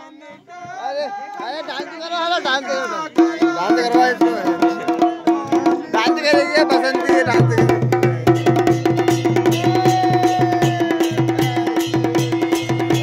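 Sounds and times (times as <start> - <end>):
drums beating: 3.0 - 13.0.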